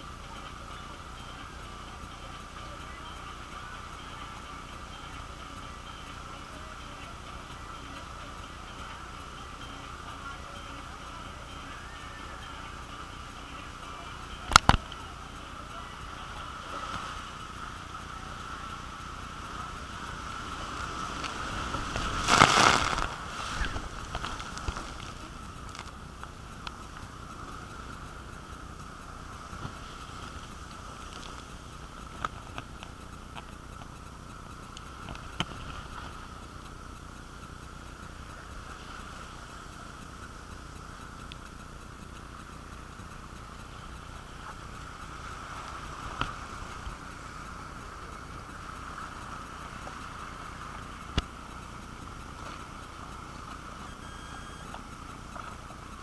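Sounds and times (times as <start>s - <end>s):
water rushing down slide: 19.4s - 25.4s
high-pitched ring: 41.6s - 55.3s.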